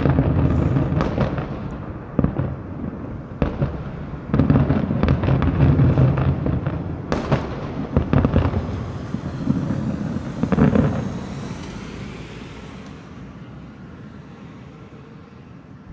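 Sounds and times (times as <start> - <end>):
fireworks bangs: 0.0 - 14.1
fireworks crackling: 0.0 - 14.6
low rumble: 7.1 - 13.4.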